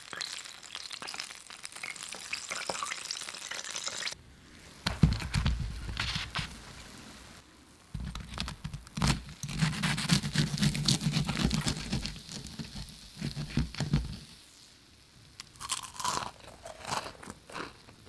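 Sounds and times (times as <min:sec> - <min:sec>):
fried chicken crust crunching: 0:08.0 - 0:14.0, 0:15.4 - 0:18.0.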